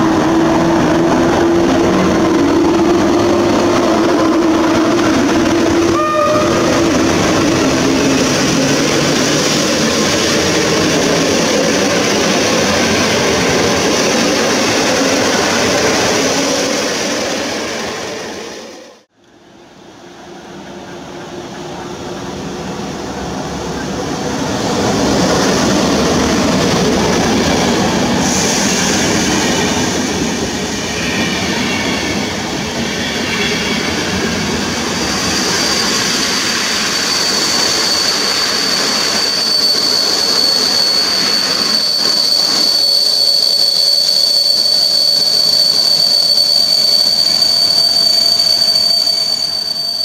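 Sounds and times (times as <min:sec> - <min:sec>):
train rolling past on rails: 0:00.0 - 0:50.0
high-pitched wheel squeal: 0:00.8 - 0:18.3, 0:30.9 - 0:50.0.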